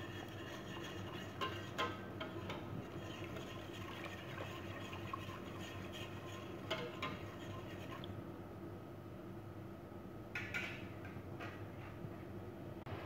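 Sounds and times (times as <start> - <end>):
whisk clicking against pot: 0.0 - 8.1
steady low hum: 0.0 - 10.3.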